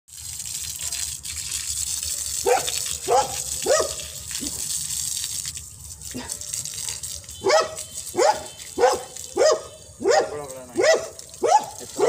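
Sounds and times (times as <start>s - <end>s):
dog barking: 2.0s - 4.1s, 6.2s - 12.0s.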